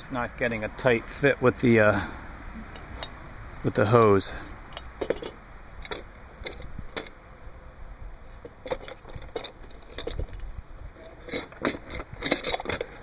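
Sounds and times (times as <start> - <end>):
metal valve and hose rattling: 3.9 - 7.2, 8.4 - 10.4, 11.0 - 13.0.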